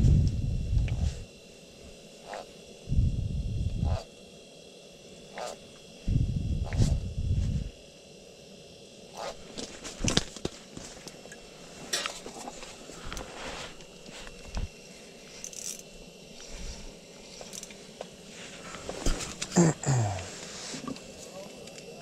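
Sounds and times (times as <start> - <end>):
clothing brushing: 12.4 - 14.4
fishing reel clicks and scrapes: 15.4 - 16.6.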